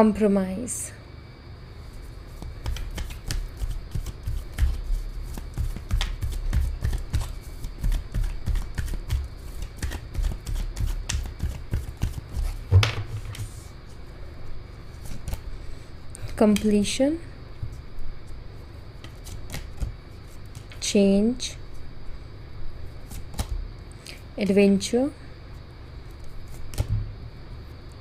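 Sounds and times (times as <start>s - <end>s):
cards being shuffled: 2.3s - 13.7s, 14.9s - 15.5s, 19.0s - 20.8s, 23.1s - 23.6s, 26.2s - 26.9s.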